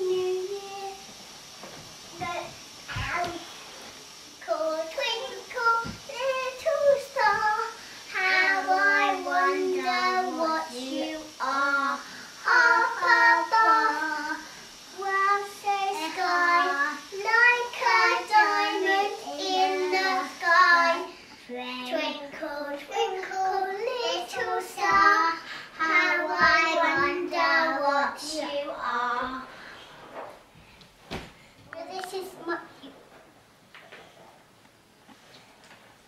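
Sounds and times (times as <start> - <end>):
girl singing unaccompanied: 0.0 - 1.2, 2.1 - 3.6, 4.4 - 29.5
girl breathing: 25.4 - 25.8.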